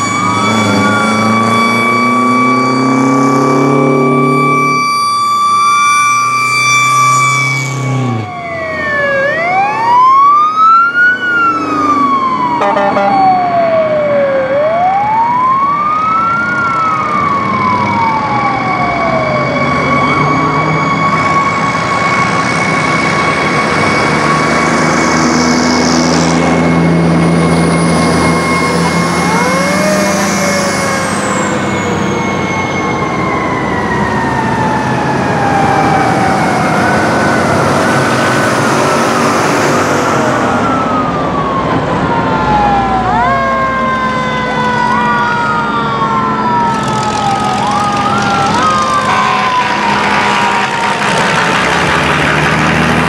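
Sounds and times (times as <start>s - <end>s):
fire truck sirens: 0.0s - 53.0s
truck horn: 12.6s - 13.4s, 49.0s - 52.2s.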